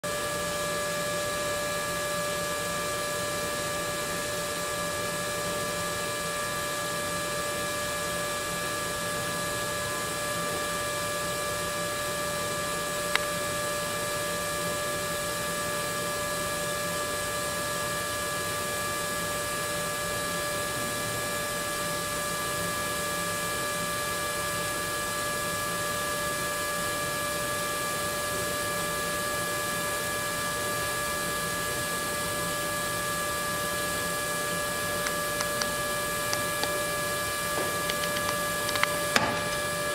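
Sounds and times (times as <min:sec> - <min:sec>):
welding arc hissing and buzzing: 0:33.8 - 0:39.9.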